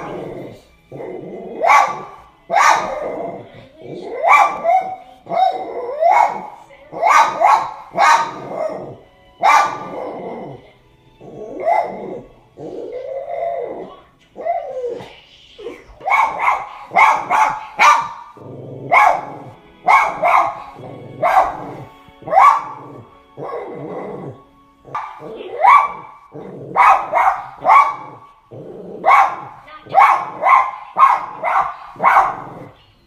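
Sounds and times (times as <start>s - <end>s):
film soundtrack music: 0.0s - 33.0s
dog barking: 1.5s - 3.5s, 4.1s - 10.2s, 11.5s - 12.3s, 16.0s - 24.0s, 24.9s - 28.3s, 28.9s - 32.8s.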